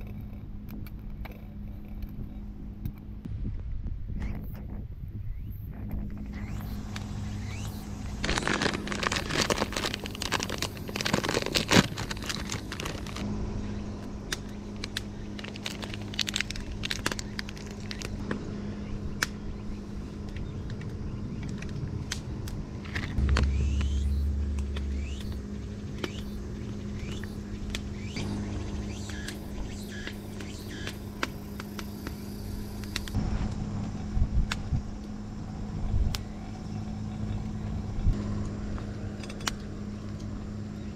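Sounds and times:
low rumble: 0.0 - 39.7
steady low hum: 0.0 - 40.9
packet crinkling: 6.8 - 13.2, 14.3 - 18.2.

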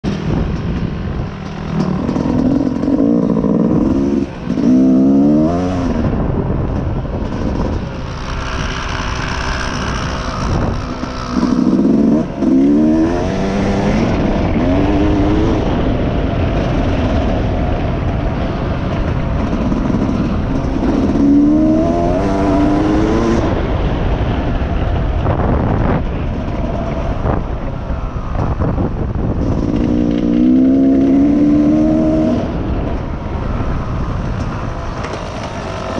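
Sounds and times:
steady rushing noise: 0.0 - 35.9
dirt bike engine revving: 1.4 - 6.2, 7.3 - 16.0, 29.2 - 32.6.

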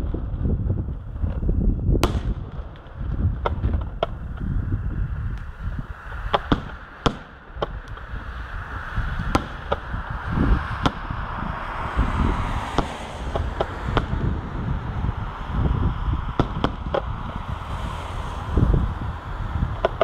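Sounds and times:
low rumble: 0.0 - 20.0
firework shells cracking: 6.2 - 8.2, 9.3 - 9.9.

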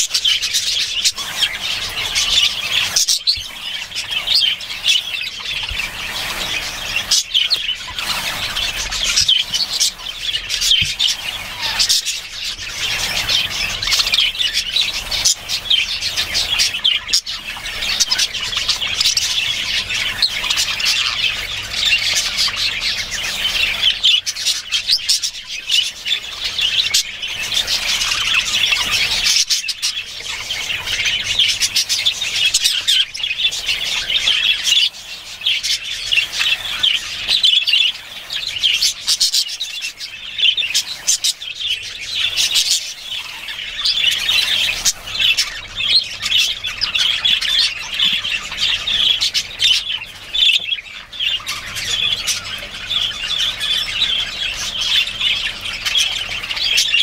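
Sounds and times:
budgerigar chattering and warbling: 0.0 - 57.0.

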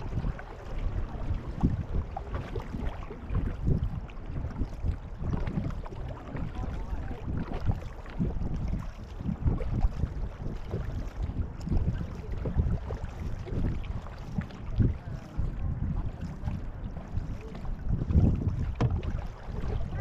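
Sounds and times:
paddle strokes in water: 0.0 - 20.0
water moving along hull: 0.0 - 20.0
wind on microphone: 0.0 - 20.0.

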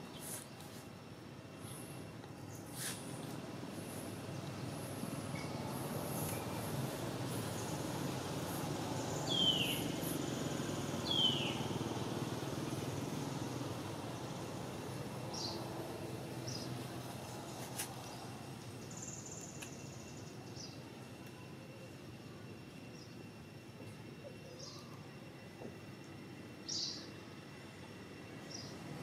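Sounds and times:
faint bird chirps: 24.2 - 25.2.

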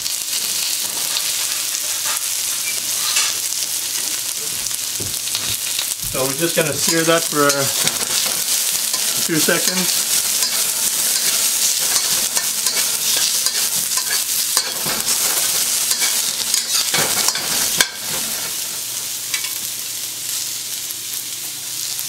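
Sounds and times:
vegetables sizzling in hot oil: 0.0 - 22.0
metal ladle scraping wok: 6.8 - 18.6.

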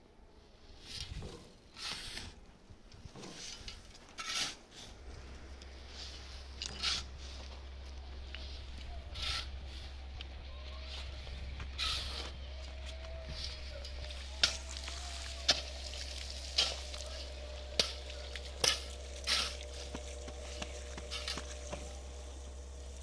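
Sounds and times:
hand tool scraping sand: 0.8 - 2.4, 3.2 - 5.1, 5.9 - 7.5, 8.4 - 9.9, 11.7 - 12.4, 14.4 - 23.0.

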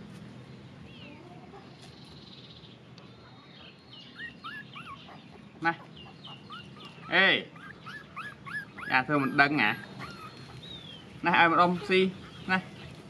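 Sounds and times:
animal chirping calls: 3.2 - 12.5
loud animal squeak: 6.3 - 10.6.

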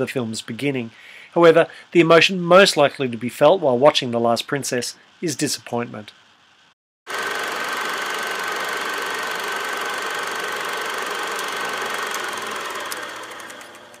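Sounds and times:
machine running: 7.1 - 14.0.

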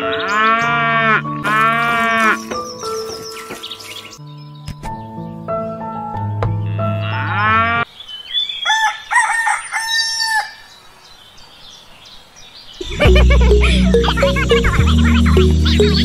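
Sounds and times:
background music: 0.0 - 7.4, 12.8 - 16.0
rooster crowing: 8.7 - 10.7.

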